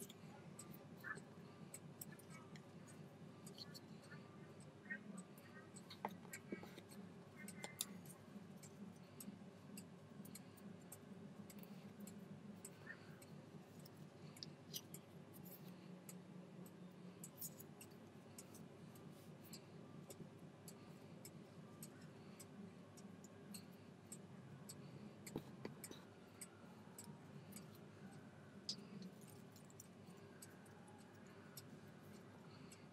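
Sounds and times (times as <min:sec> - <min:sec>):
low steady hum: 0:00.0 - 0:32.9.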